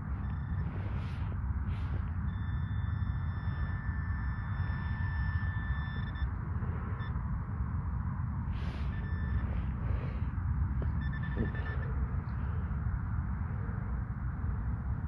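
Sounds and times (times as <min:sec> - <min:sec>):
pinpointer beeps and tones: 0:00.0 - 0:07.2, 0:08.6 - 0:09.5, 0:10.8 - 0:12.0
wind rumbling on microphone: 0:00.0 - 0:15.0.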